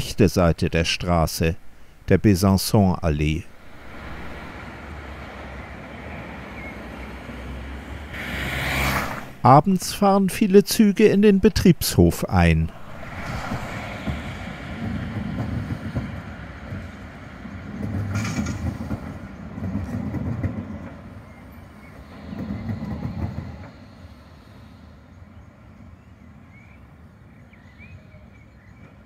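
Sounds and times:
tram rumbling over track junction: 3.2 - 9.6, 12.6 - 27.3.

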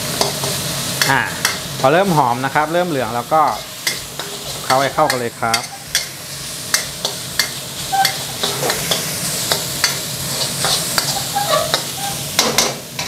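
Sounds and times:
meat sizzling in a wok: 0.0 - 13.0
metal spatula scraping a pan: 3.5 - 13.0.

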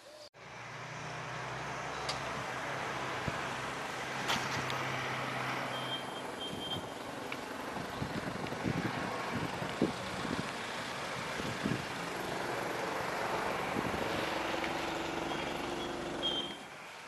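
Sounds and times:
distant engine running: 0.4 - 16.7.

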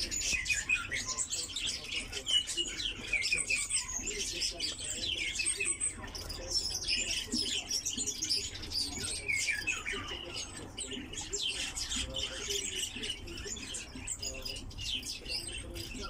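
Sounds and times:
songbirds chirping and twittering: 0.0 - 16.0.

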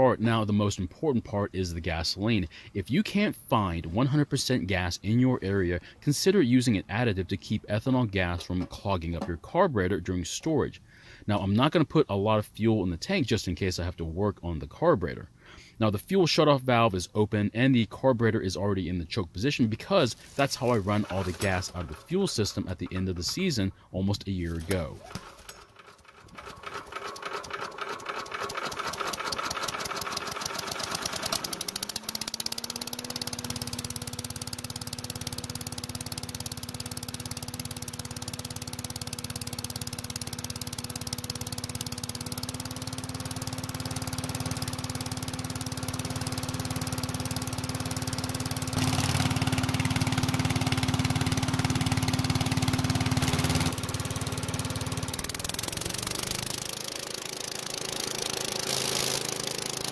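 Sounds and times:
leaf blower engine running: 20.1 - 22.1, 25.0 - 59.9.

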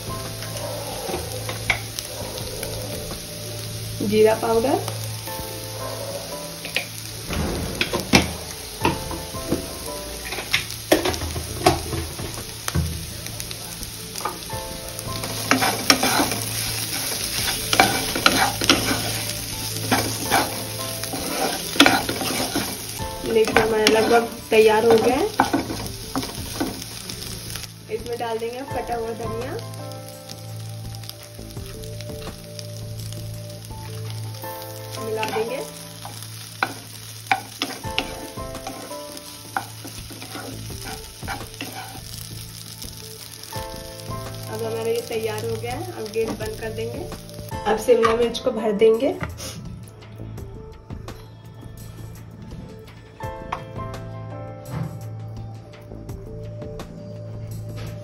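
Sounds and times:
potatoes frying in a pan: 0.0 - 49.6
spatula scraping a pan: 15.2 - 27.4, 35.0 - 42.3.

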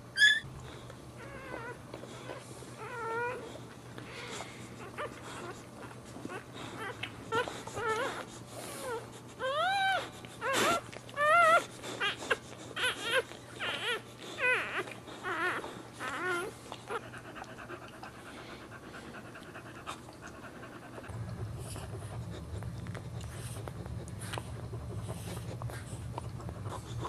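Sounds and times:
puppy crying in high squeals: 0.1 - 0.5, 8.9 - 16.5.

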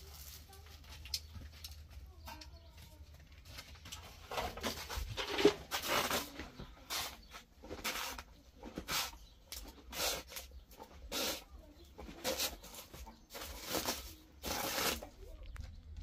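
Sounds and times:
trowel scraping cement powder: 4.3 - 15.2
cement pouring into metal basin: 4.6 - 15.1.

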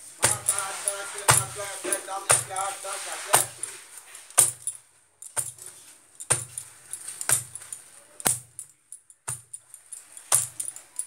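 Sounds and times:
bangles jingling: 0.0 - 11.0
hands slapping dough: 0.2 - 3.7, 4.4 - 4.7.

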